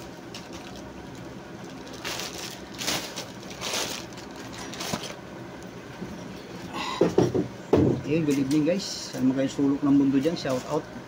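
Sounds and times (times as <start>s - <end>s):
plastic packaging crinkling: 0.0s - 5.2s.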